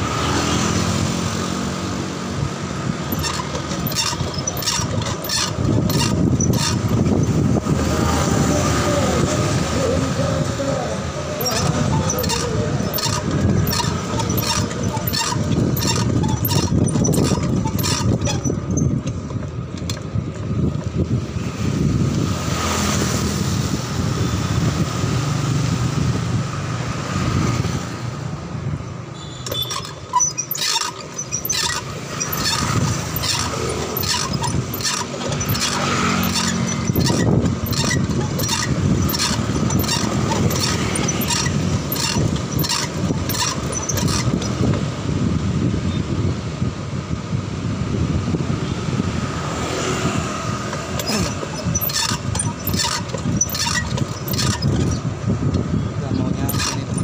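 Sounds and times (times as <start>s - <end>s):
road rumble: 0.0s - 57.0s
wind: 0.0s - 57.0s
bicycle basket rattling: 3.0s - 7.6s, 11.3s - 20.2s, 29.5s - 44.9s, 50.7s - 57.0s.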